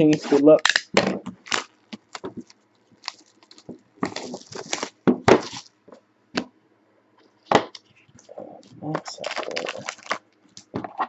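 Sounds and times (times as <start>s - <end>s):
cardboard and wrapping rustling: 0.0s - 5.7s, 7.6s - 11.0s.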